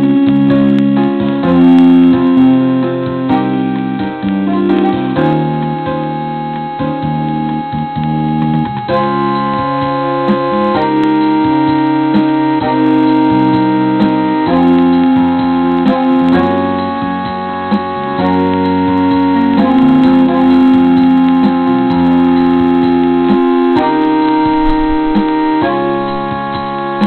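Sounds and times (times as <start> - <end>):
keyboard chords: 0.0 - 27.0.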